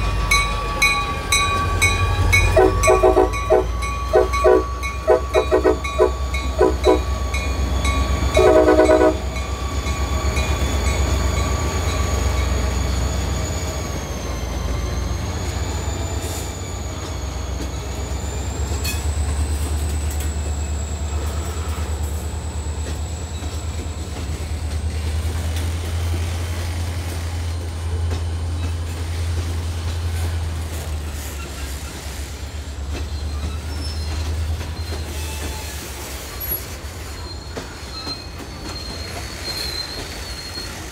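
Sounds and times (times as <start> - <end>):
train rumbling: 0.0 - 40.9
train horn blast: 2.5 - 7.2, 8.3 - 9.4
high-pitched wheel squeal: 32.9 - 40.9.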